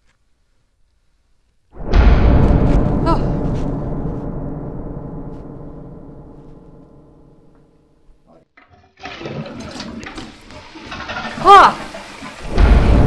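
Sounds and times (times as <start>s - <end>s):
deep gong-like musical sting: 1.8s - 7.8s.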